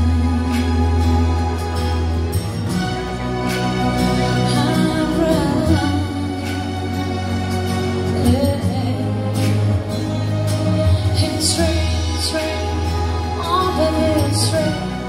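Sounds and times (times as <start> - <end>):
woman singing into microphone: 0.0 - 1.7, 4.4 - 7.3, 8.1 - 15.0
pop backing track with bass and drums: 0.0 - 15.0.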